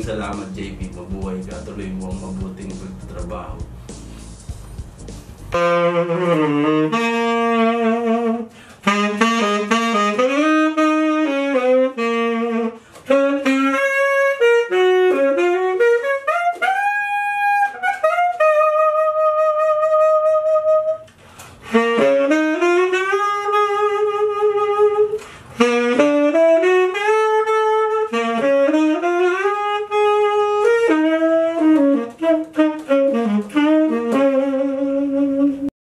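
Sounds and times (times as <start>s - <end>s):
tenor saxophone melody: 3.5s - 35.7s.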